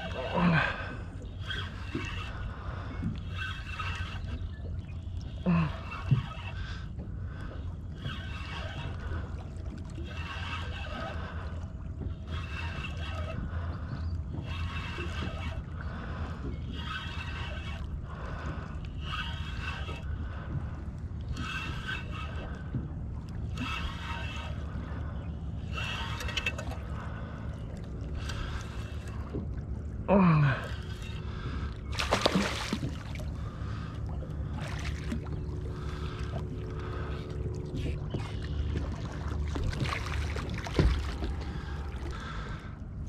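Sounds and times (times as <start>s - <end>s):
fishing reel gears whirring: 0.0s - 42.8s
wind and water rushing: 19.2s - 43.0s.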